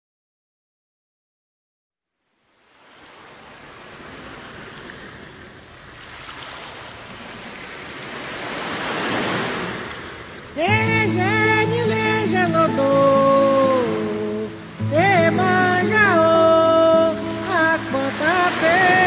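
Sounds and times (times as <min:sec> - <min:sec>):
ocean waves washing in: 0:02.5 - 0:19.0
song with singing voice: 0:10.6 - 0:19.0.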